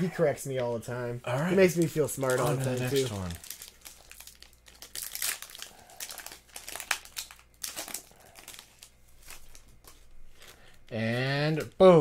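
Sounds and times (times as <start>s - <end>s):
foil wrapper crinkling: 1.6s - 10.8s
foil wrapper crackle: 1.7s - 10.8s.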